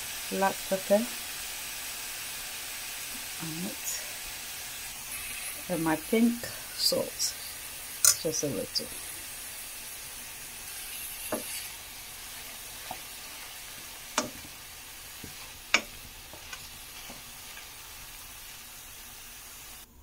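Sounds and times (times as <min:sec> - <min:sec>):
mushrooms sizzling in oil: 0:00.0 - 0:20.0
metal spoon clicking on pan: 0:08.0 - 0:08.3.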